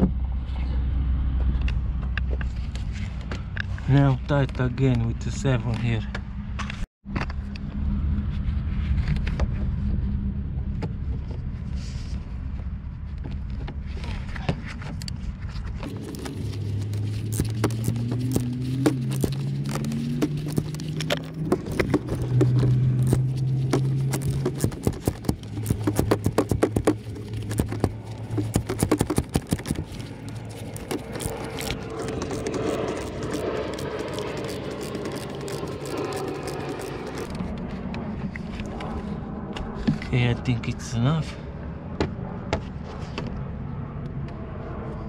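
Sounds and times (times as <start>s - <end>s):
rapid clicking: 17.3s - 37.4s.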